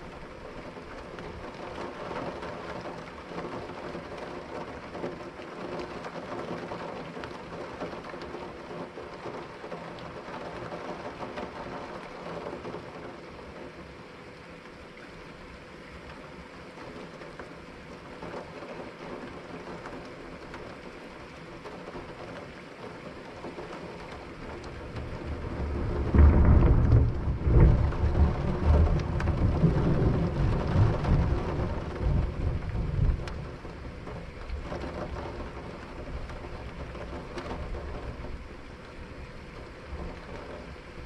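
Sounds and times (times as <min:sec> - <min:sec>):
steady rain: 0:00.0 - 0:41.0
thunder rumbling: 0:24.4 - 0:38.6.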